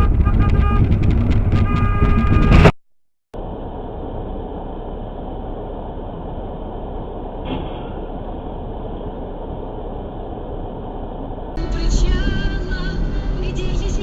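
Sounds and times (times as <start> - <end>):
car idling: 3.4 - 14.0.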